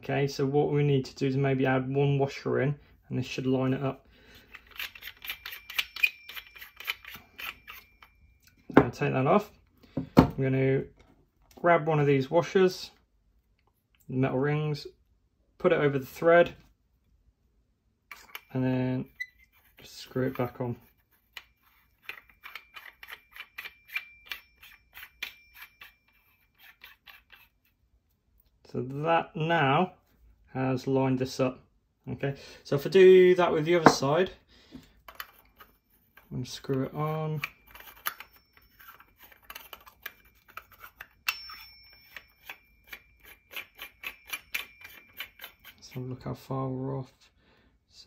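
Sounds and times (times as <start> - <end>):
metal parts screwing ticks: 4.4 - 8.6, 21.3 - 27.5, 37.4 - 45.8
faint high ring: 21.2 - 26.4, 37.4 - 45.8.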